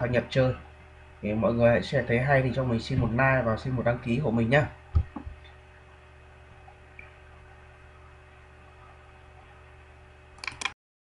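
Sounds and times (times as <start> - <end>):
faint electrical hum with hiss: 0.0 - 10.7
clicks: 10.4 - 10.8.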